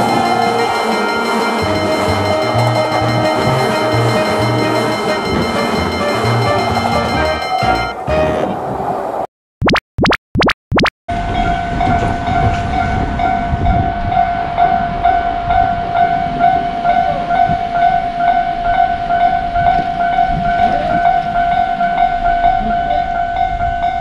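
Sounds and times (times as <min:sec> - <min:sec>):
level crossing warning bell ringing: 0:00.0 - 0:08.1, 0:11.1 - 0:24.0.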